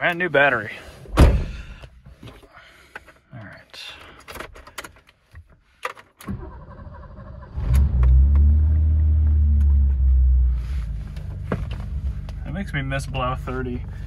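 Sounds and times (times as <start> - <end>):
car engine cranking and starting: 6.0 - 14.0.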